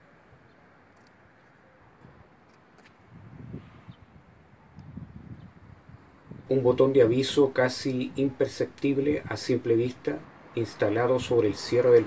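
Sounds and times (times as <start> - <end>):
faint background hiss: 5.8 - 12.0.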